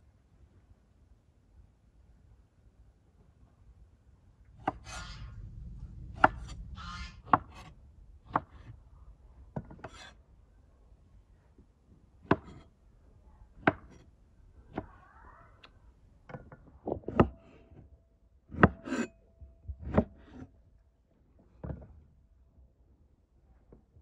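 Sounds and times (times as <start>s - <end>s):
cleaver chopping on wooden board: 12.2s - 12.6s, 13.6s - 14.0s.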